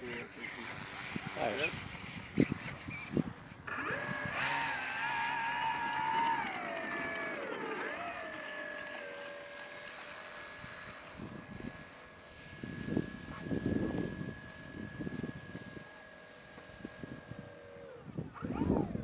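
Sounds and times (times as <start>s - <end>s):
model plane motor whining: 0.0s - 19.0s.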